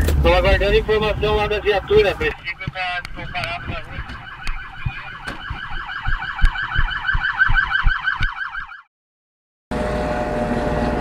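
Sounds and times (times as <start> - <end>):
low thumps: 0.0 - 8.3
police siren yelping: 1.6 - 8.9.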